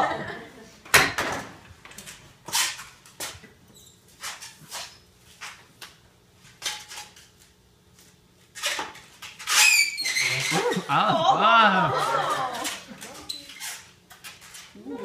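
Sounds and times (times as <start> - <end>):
balloon squeaking: 9.4 - 10.9.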